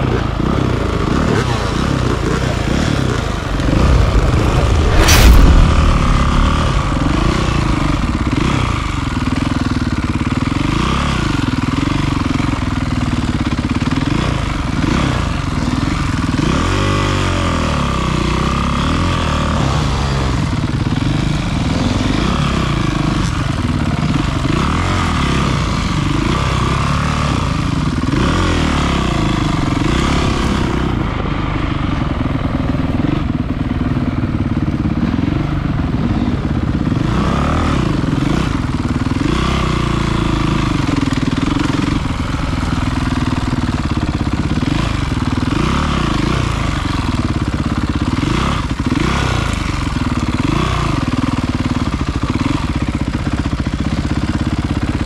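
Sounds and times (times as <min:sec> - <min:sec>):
dirt bike engine revving: 0:28.1 - 0:46.4.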